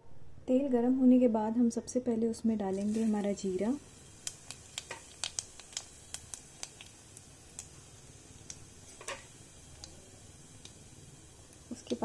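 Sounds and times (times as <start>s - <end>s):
seeds crackling in hot oil: 2.7s - 12.0s.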